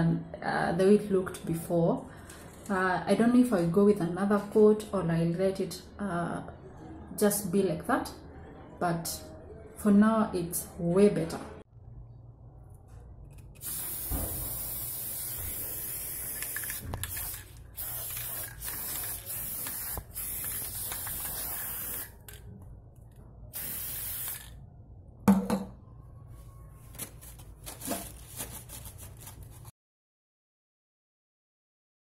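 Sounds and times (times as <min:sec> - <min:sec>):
aerosol spray can hissing: 0:13.6 - 0:22.2, 0:23.6 - 0:24.5.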